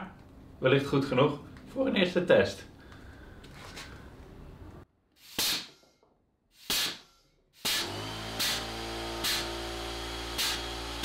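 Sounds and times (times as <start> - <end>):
sharp blasts of air: 5.2 - 5.8, 6.5 - 9.5.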